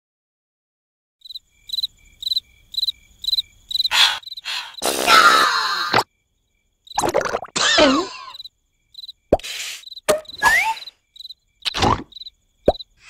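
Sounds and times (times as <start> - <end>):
cricket chirping: 1.2 - 13.0
breathy burst: 3.9 - 5.4.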